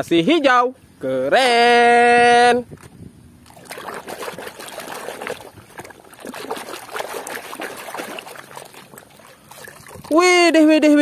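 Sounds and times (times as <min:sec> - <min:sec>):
water splashing in plastic tub: 0:03.4 - 0:10.6.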